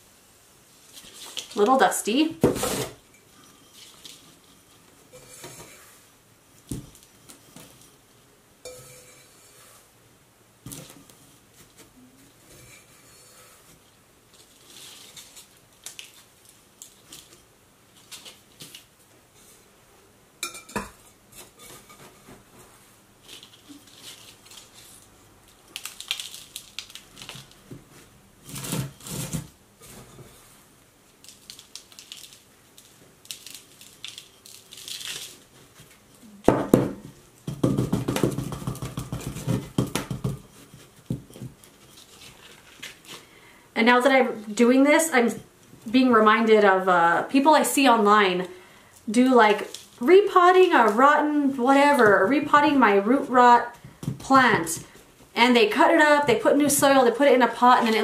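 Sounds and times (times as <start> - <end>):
rustling of soil and leaves: 10.7 - 19.5
pots clinking and knocking: 20.4 - 22.2, 36.5 - 41.6.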